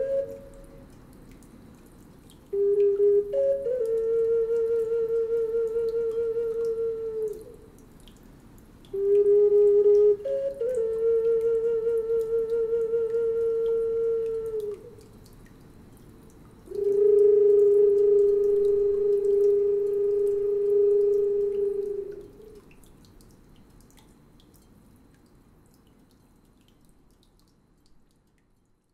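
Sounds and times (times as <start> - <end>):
flute-like wind instrument notes: 0.0 - 1.0, 2.5 - 7.7, 8.9 - 15.1, 16.7 - 22.6.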